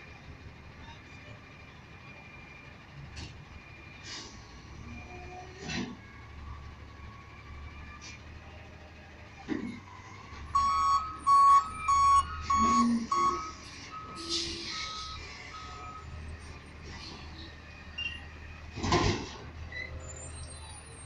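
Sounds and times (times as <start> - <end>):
truck engine rumble: 0.0 - 21.0
backup alarm beeping: 10.6 - 16.2.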